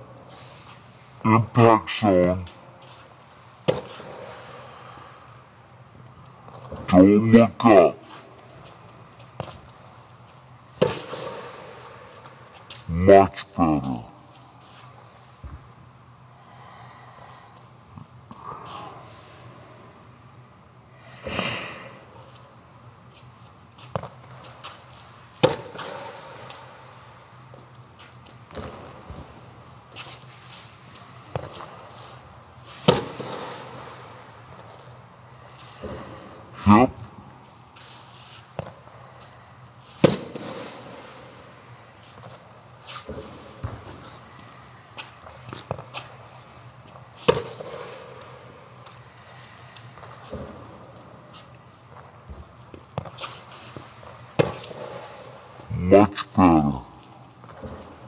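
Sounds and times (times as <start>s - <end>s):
racket striking ball: 10.8s - 11.7s, 25.4s - 26.4s, 32.8s - 33.7s, 40.0s - 41.0s, 47.3s - 48.0s
tennis balls bouncing: 40.0s - 40.8s.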